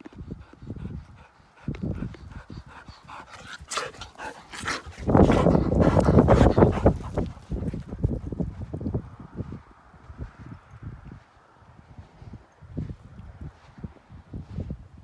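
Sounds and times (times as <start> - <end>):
dog panting: 0.0 - 8.3
wind noise on microphone: 0.0 - 15.0
footsteps in loose sand: 1.8 - 15.0.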